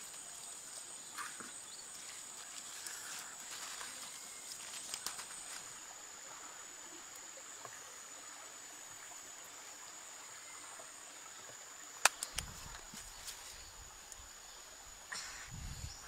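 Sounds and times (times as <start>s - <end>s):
steady outdoor hiss: 0.0s - 16.0s
sticks clicking on embers: 12.0s - 12.5s.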